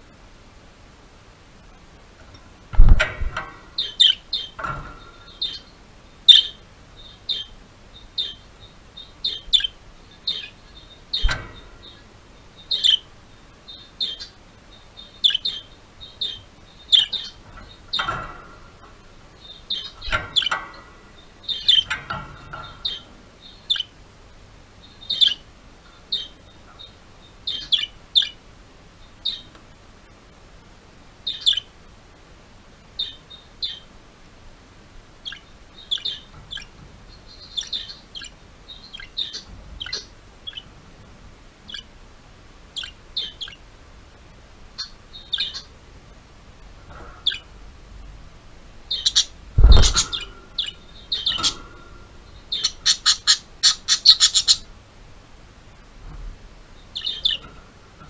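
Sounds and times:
budgerigars chirping: 3.4 - 18.3, 19.3 - 24.0, 24.8 - 28.4, 29.1 - 29.5, 31.2 - 31.7, 33.0 - 33.9, 35.2 - 40.7, 41.7 - 41.9, 42.7 - 43.6, 44.7 - 45.8, 47.2 - 47.5, 48.9 - 54.7, 56.8 - 57.5
sharp knock: 49.6 - 50.3.

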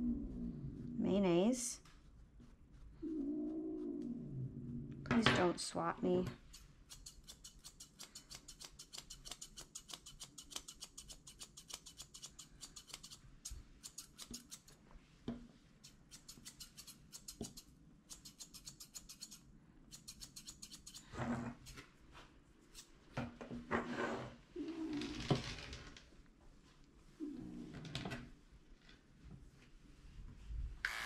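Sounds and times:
shears snipping fur: 6.3 - 14.8, 15.8 - 21.8.

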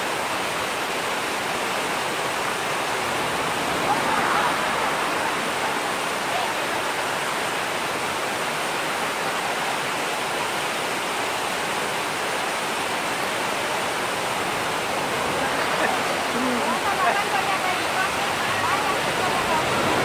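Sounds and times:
stream rushing down rock cascade: 0.0 - 20.0.

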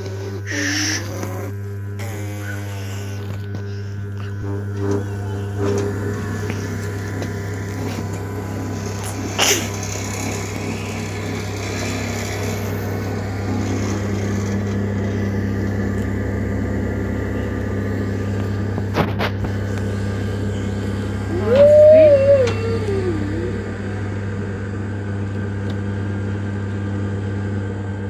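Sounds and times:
potter's wheel motor humming: 0.0 - 28.0.

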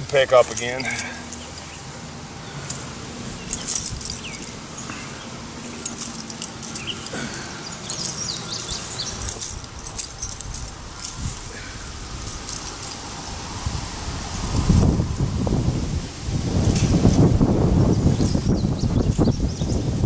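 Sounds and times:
nylon parachute rustling: 0.0 - 18.6
keys jingling: 0.3 - 13.5, 14.3 - 15.1, 18.2 - 20.0.

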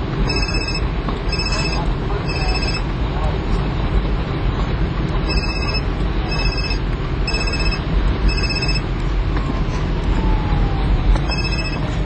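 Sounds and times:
low vehicle rumble: 0.0 - 12.0
high electronic beeps: 0.2 - 2.9, 5.2 - 8.9, 11.2 - 11.9.

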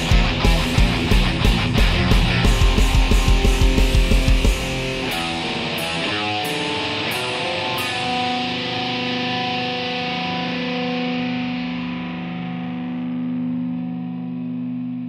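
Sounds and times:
drum and cymbal hits: 0.0 - 8.4
distorted electric guitar chord: 0.0 - 15.0.

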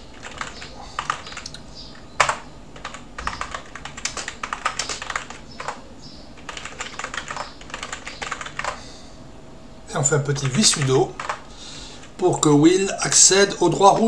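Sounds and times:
computer keyboard typing: 0.1 - 1.6, 2.2 - 5.8, 6.4 - 8.8, 10.3 - 11.5.

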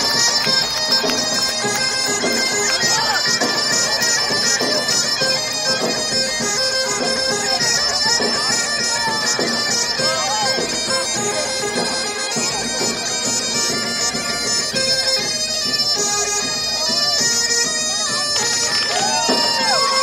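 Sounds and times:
bagpipe music: 0.0 - 20.0.

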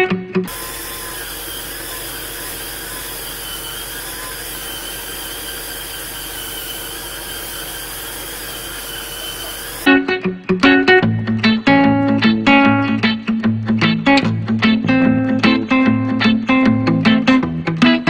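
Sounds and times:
spin scrubber motor whirring: 0.5 - 9.9.

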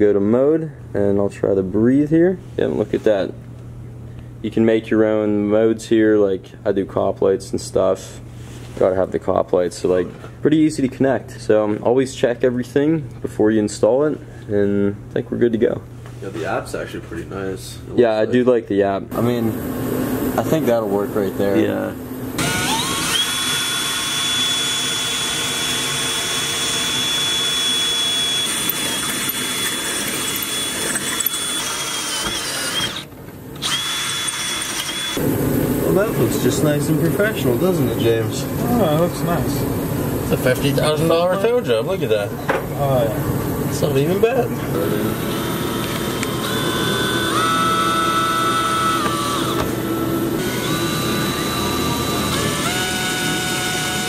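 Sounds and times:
cordless drill high whine: 22.4 - 35.2, 44.8 - 54.0.

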